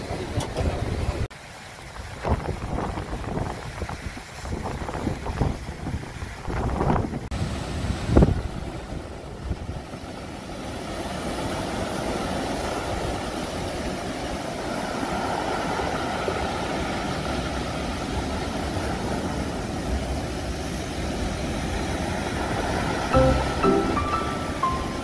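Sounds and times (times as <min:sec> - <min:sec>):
wind rumble on microphone: 0:01.9 - 0:10.0
waves breaking over rocks: 0:07.4 - 0:23.0.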